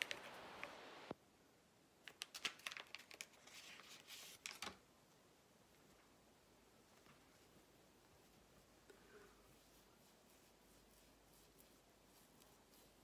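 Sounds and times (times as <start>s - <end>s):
wrapper crinkling and tearing: 2.1s - 4.8s.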